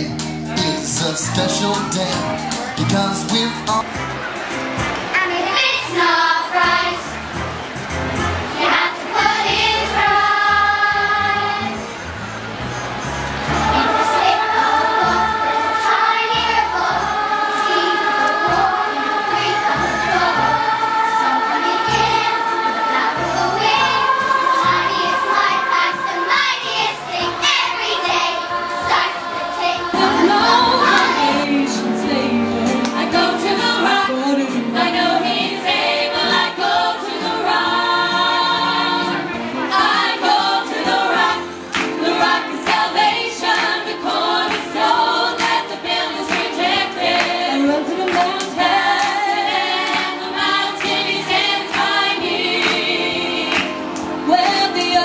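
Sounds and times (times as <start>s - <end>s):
choir singing with music: 0.0s - 55.0s
woman singing into microphone: 29.6s - 35.6s, 46.1s - 49.2s, 54.2s - 55.0s.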